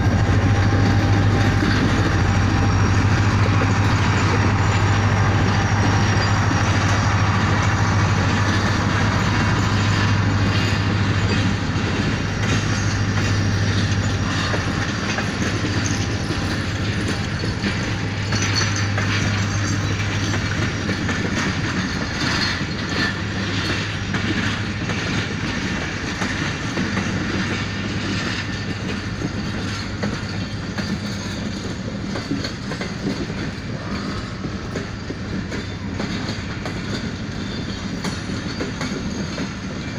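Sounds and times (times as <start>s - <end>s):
locomotive engine drone: 0.0s - 39.9s
train wheels clacking over rail joints: 0.0s - 39.9s.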